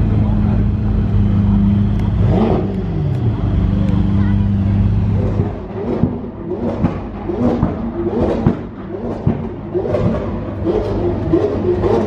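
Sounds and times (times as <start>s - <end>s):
car engine idling: 0.0s - 12.0s
crowd chatter: 0.0s - 12.0s.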